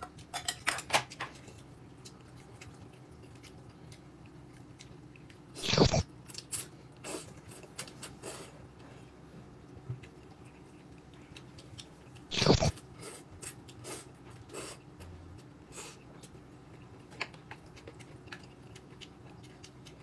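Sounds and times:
wet chewing: 0:09.6 - 0:20.0
loud slurp: 0:12.3 - 0:12.7.

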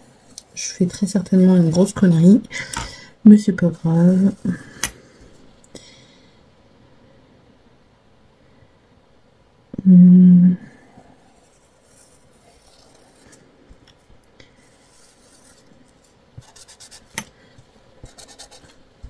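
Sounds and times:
person humming: 0:09.7 - 0:10.8
marker scratching on paper: 0:14.6 - 0:15.6, 0:16.4 - 0:17.3, 0:18.0 - 0:18.8.

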